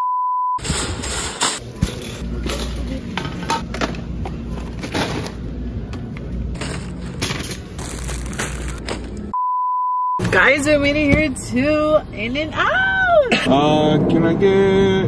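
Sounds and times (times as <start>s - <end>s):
censor bleep tone: 0.0s - 0.6s, 9.4s - 10.2s
groceries clattering in wire cart: 6.5s - 9.3s.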